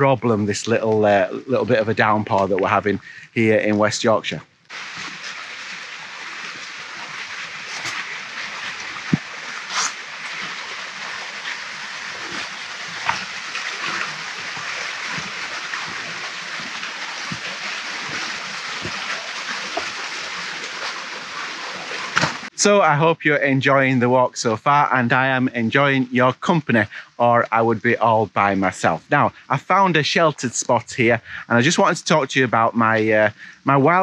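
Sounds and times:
footsteps on wet path: 4.7s - 22.5s
rain falling on trees: 4.7s - 22.5s.

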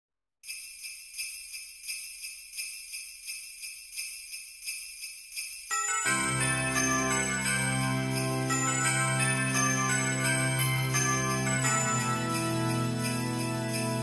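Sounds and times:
sleigh bells shaken: 0.4s - 14.0s
song with bass and sustained notes: 6.0s - 14.0s.

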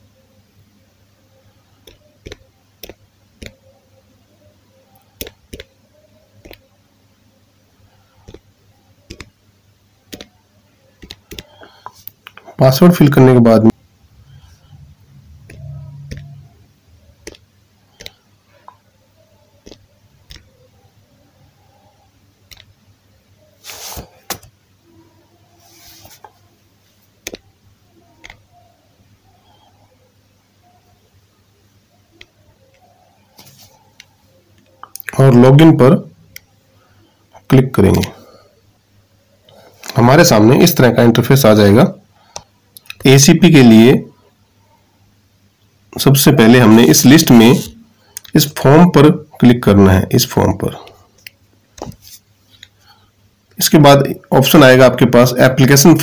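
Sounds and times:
tapping on touchscreen keyboard: 8.2s - 8.5s, 9.1s - 9.3s, 11.0s - 11.7s, 15.5s - 16.4s, 17.2s - 17.4s
on-screen key-press clicks: 9.1s - 9.3s, 17.2s - 17.4s, 22.5s - 22.7s.

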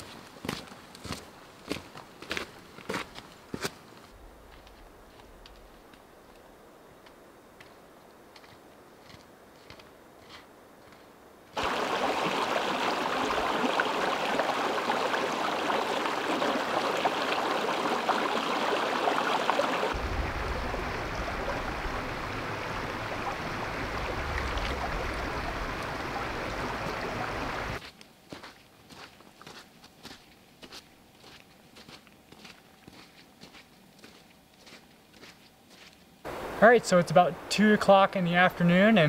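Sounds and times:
footsteps on rocky trail: 0.0s - 11.2s, 27.8s - 36.1s
creek running over rocks: 11.6s - 27.8s, 36.3s - 39.0s.

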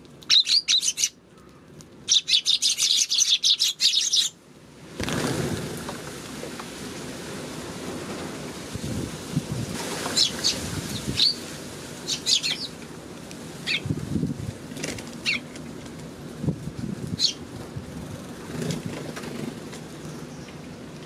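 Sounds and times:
sparrows chirping: 0.3s - 4.4s, 10.1s - 11.4s, 12.0s - 12.8s, 13.6s - 13.9s, 15.2s - 15.5s, 17.2s - 17.4s
fluttering wingbeats: 5.0s - 6.4s, 17.1s - 20.3s.

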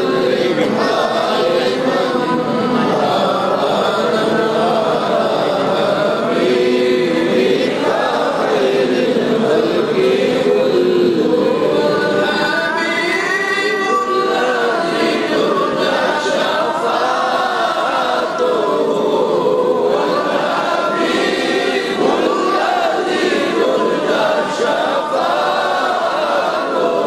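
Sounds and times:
men chanting through loudspeakers: 0.0s - 27.0s.

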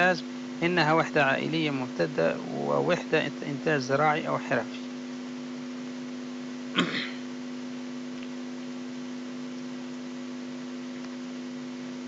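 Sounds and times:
steady multi-tone hum: 0.0s - 12.0s
person clearing throat: 6.7s - 7.3s.

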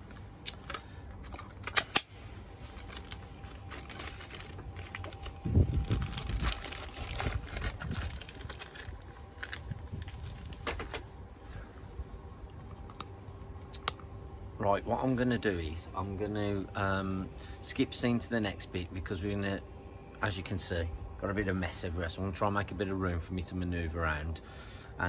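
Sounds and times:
plastic bag rustling: 2.2s - 11.2s.

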